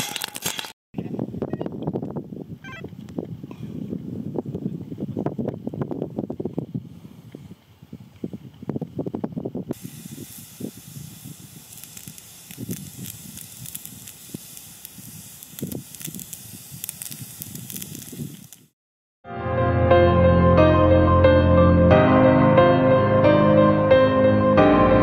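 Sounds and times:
wind buffeting microphone: 0:01.0 - 0:18.6
hose water jet hissing: 0:09.7 - 0:18.7.

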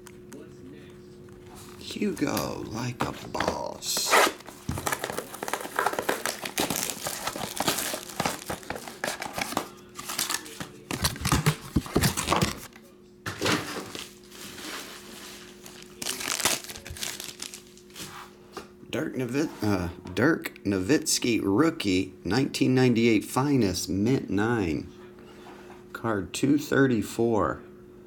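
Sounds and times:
faint steady hum: 0:00.0 - 0:28.0
foil wrapper tearing and crinkling: 0:03.9 - 0:12.7, 0:13.8 - 0:18.0.

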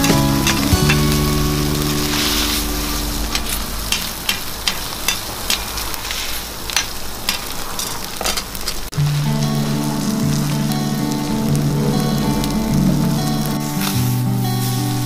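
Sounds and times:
background music: 0:00.0 - 0:04.3, 0:09.0 - 0:15.0
food sizzling on griddle: 0:00.0 - 0:15.0.

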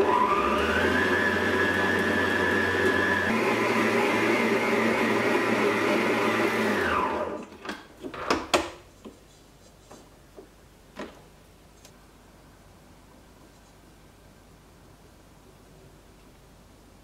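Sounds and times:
stand mixer motor running: 0:00.0 - 0:07.4.

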